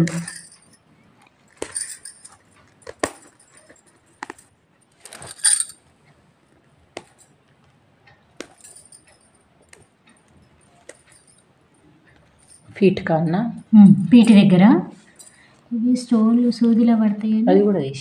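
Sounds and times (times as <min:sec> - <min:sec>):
beads clicking and clinking: 0:00.0 - 0:00.8, 0:01.5 - 0:05.8
fabric rustling: 0:01.4 - 0:05.8.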